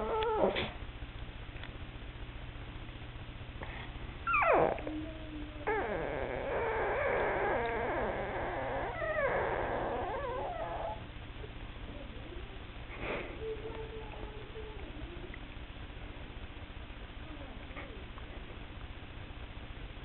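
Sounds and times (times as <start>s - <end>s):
dog yelping: 0.0s - 0.6s, 4.3s - 5.0s, 6.4s - 11.1s
dog whining: 0.0s - 0.8s, 4.2s - 11.1s.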